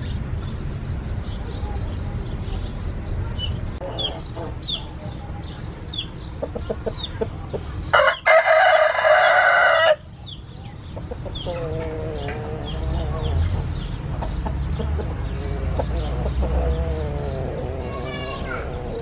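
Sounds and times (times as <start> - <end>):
rooster crowing: 8.0 - 10.0.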